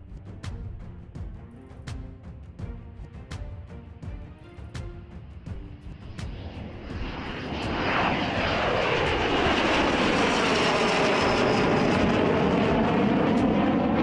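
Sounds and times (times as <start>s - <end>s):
jet engine flying past: 5.6s - 14.0s.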